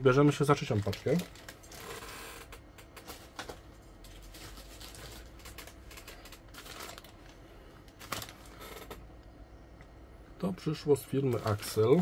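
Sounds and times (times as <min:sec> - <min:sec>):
plastic packaging rustling: 0:00.3 - 0:09.0, 0:11.1 - 0:12.0.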